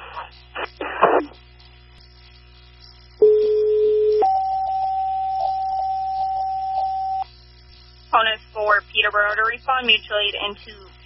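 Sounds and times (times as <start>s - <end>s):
radio scanner hiss: 0.0s - 11.0s
two-tone pager tones: 3.2s - 7.2s.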